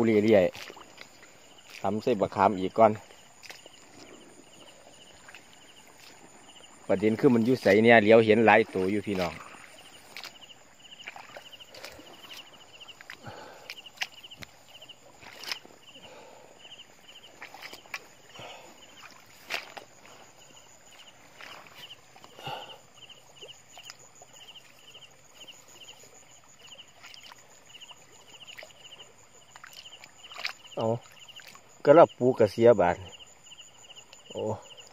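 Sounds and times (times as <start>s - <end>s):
cricket chirping: 0.0s - 34.9s
footsteps through wet grass and water: 0.0s - 34.9s.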